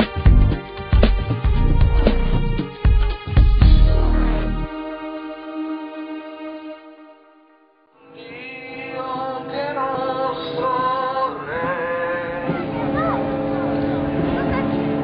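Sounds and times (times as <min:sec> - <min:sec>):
intro music chord: 0:00.0 - 0:11.6
voices singing a hymn: 0:08.0 - 0:13.5
crowd noise: 0:08.4 - 0:15.0.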